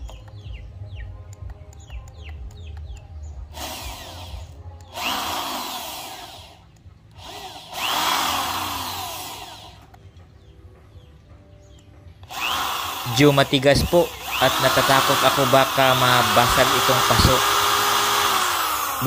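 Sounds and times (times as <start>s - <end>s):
electric drill grinding ceramic: 3.3s - 10.0s, 12.2s - 19.0s.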